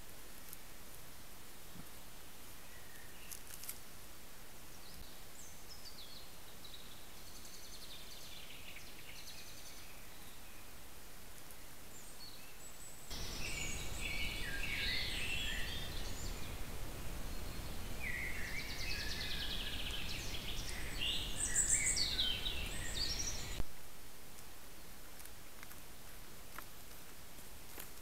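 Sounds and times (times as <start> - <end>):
microphone hiss: 0.0 - 28.0
songbirds singing: 1.6 - 3.7, 4.5 - 10.8, 11.4 - 23.6.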